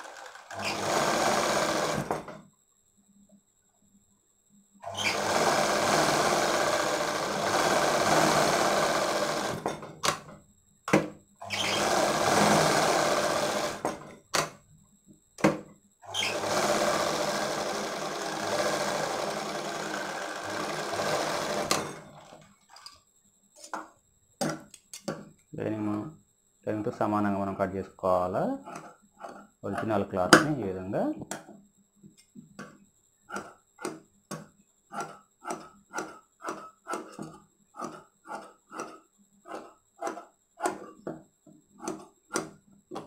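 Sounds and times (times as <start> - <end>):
sewing machine stitching: 0.0 - 2.4, 4.8 - 10.3, 11.4 - 14.1, 16.1 - 22.4, 28.6 - 29.4, 34.9 - 41.0.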